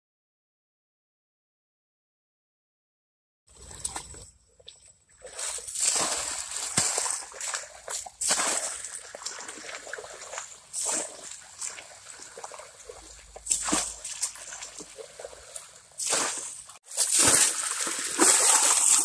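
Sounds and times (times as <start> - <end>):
water splashing onto gravel: 5.2 - 19.0
steady wash of water: 5.3 - 19.0.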